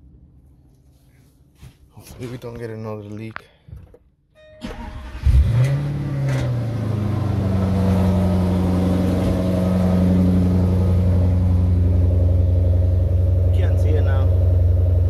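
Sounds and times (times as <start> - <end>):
car engine starting and idling: 4.5 - 15.0.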